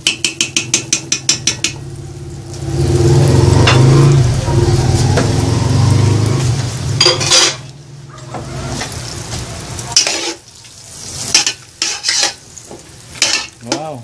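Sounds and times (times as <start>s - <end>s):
spatula scraping a metal pot: 7.0s - 7.6s, 9.9s - 10.4s, 11.3s - 12.4s.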